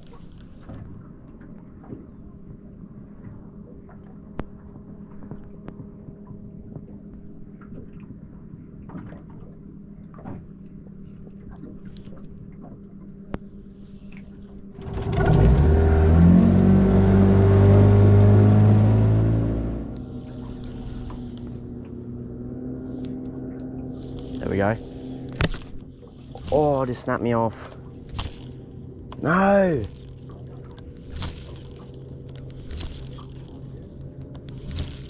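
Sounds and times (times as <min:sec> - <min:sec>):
boat motor running: 0:10.1 - 0:35.0
faint ticks: 0:19.9 - 0:22.0, 0:22.9 - 0:26.6.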